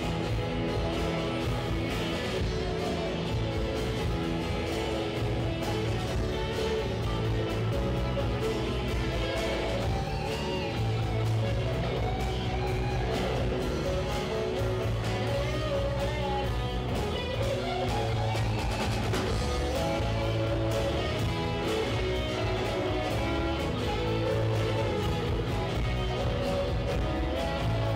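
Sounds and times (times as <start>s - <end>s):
bass guitar: 0.0s - 27.9s
drum kit beat: 0.0s - 27.9s
electric and acoustic guitars: 0.0s - 27.9s.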